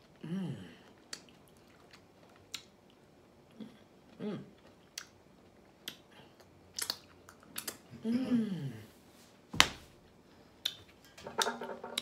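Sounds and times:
person humming mm: 0.2 - 0.8, 8.0 - 8.9
chewing with wet smacks: 0.8 - 7.9.

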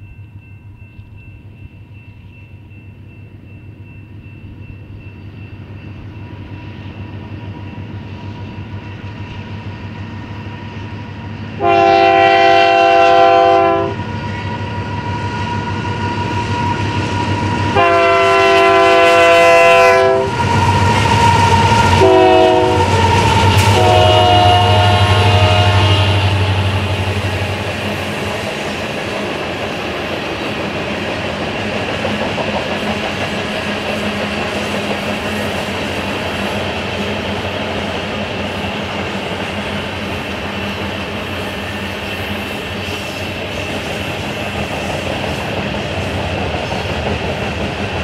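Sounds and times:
locomotive rumble: 5.6 - 48.0
locomotive air horn blasts: 11.6 - 14.0, 17.7 - 20.4, 22.0 - 27.1.

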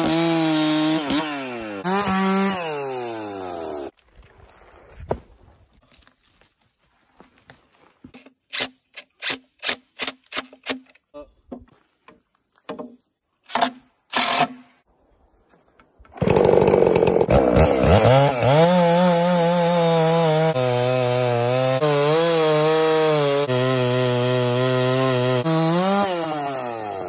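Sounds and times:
chainsaw cutting through log: 0.0 - 4.0, 16.2 - 27.0.

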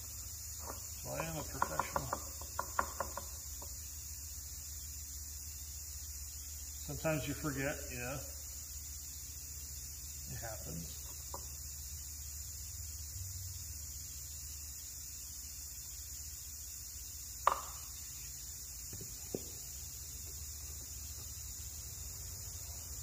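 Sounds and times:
knocks on wooden workbench: 0.6 - 3.3, 17.4 - 17.8.

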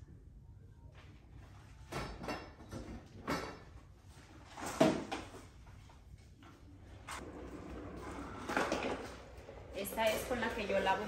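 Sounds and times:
carpet cleaner wheeled across floor: 7.0 - 11.0.

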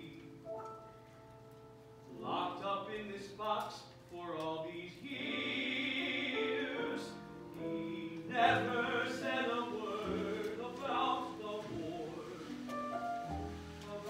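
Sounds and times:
man singing opera: 2.1 - 12.7, 13.8 - 14.0.

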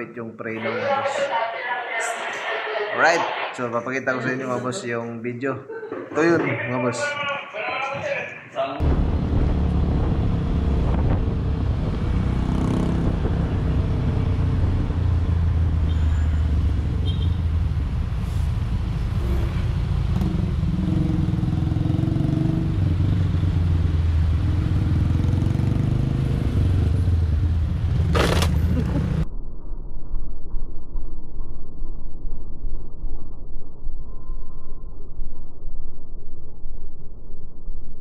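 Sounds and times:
road noise: 0.6 - 5.0, 6.4 - 29.2
wind noise: 8.8 - 15.5
motorcycle engine running: 8.9 - 15.8, 19.7 - 29.2.

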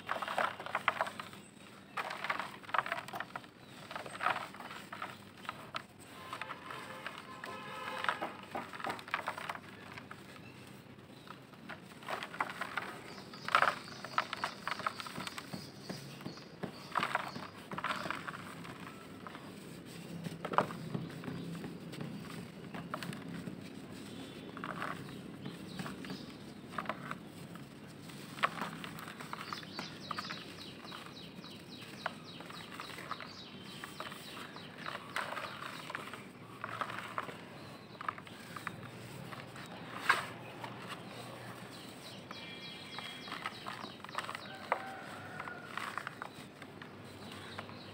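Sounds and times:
bird chirping: 0.0 - 19.5, 28.4 - 47.9
dirt crumbling in plastic bucket: 0.0 - 47.9.

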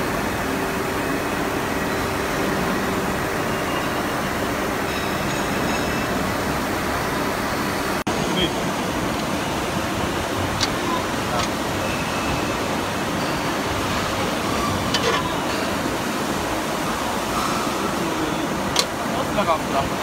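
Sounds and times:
press brake machine rushing: 9.2 - 19.1.

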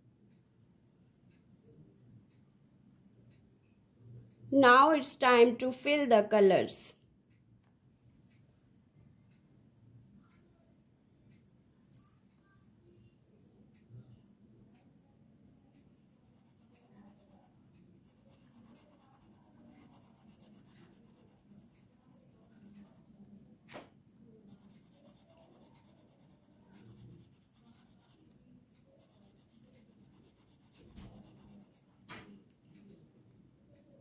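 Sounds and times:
pencil scratching on paper: 15.9 - 23.2, 24.4 - 33.8.

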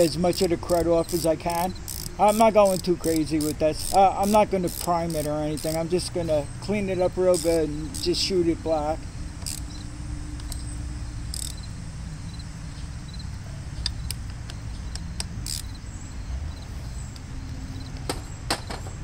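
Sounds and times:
wire brush scrubbing metal: 0.0 - 6.3
insects chirping: 0.0 - 19.0.

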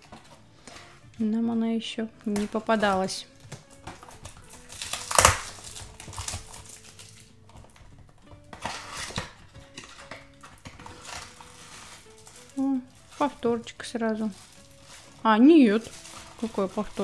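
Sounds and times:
cardboard tearing: 2.8 - 7.8, 8.4 - 13.5, 14.2 - 17.0
cardboard scraping and crinkling: 8.5 - 17.0.

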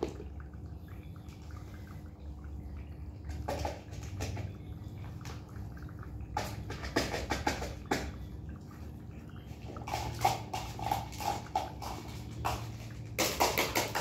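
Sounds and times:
spoon tapping can and bowls: 6.4 - 8.1, 9.9 - 14.0
spoon scraping wet cat food: 9.5 - 14.0.

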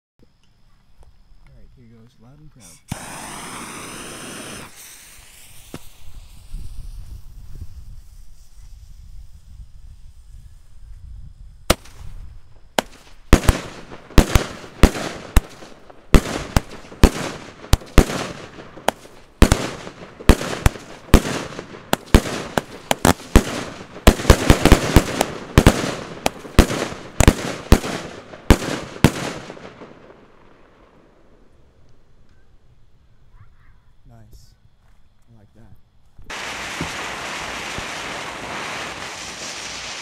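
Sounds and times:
firework bangs: 2.9 - 9.3, 11.6 - 31.5, 36.2 - 40.0.

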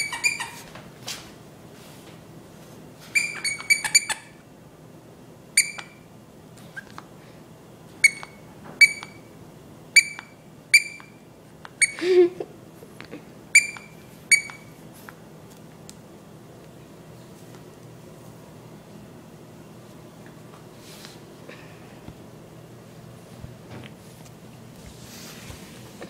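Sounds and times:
dog toy squeaking: 0.0 - 0.7, 3.1 - 4.4, 5.6 - 6.0, 8.0 - 9.2, 10.0 - 11.2, 11.8 - 12.0, 13.6 - 14.7.

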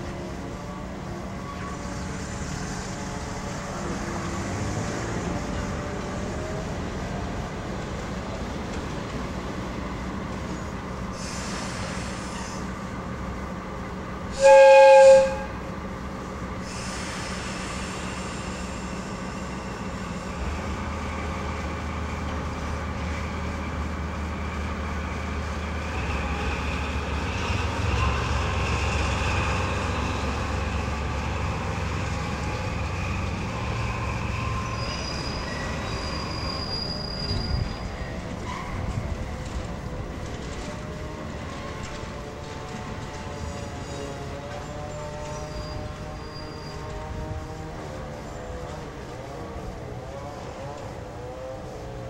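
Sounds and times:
diesel locomotive engine running: 0.0 - 52.0
locomotive horn blast: 14.3 - 15.6
thin wheel squeals: 34.2 - 38.8, 45.3 - 47.0.

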